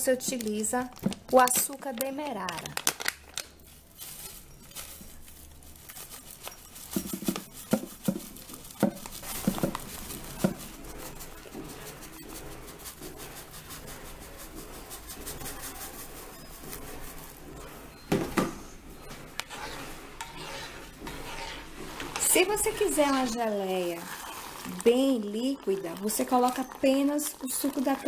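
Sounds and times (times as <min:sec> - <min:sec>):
sugar poured into glass bowl: 0:04.2 - 0:17.5, 0:22.5 - 0:28.0.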